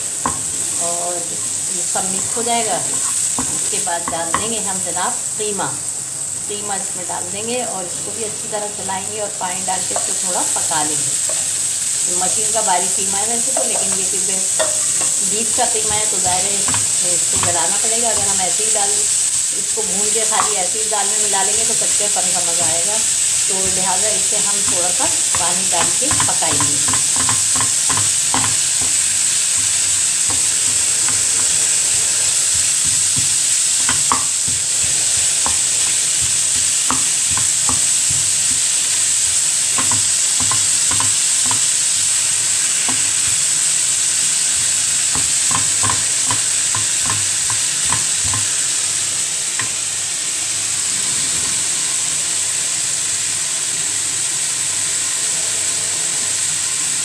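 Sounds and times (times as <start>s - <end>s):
meat sizzling in a pan: 0.0s - 57.0s
spatula scraping a pan: 1.4s - 3.8s, 13.8s - 18.7s, 22.1s - 43.6s.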